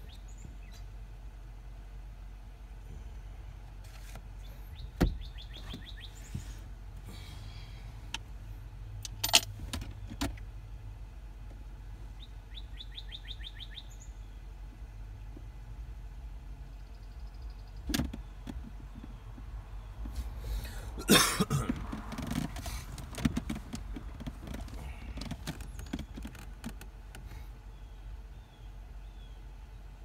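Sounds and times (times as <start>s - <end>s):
bird chirping: 0.0s - 0.9s, 4.4s - 6.5s, 12.1s - 14.5s, 16.6s - 20.1s, 27.7s - 30.0s
sharp clicks and knocks: 17.8s - 20.2s, 21.6s - 27.3s.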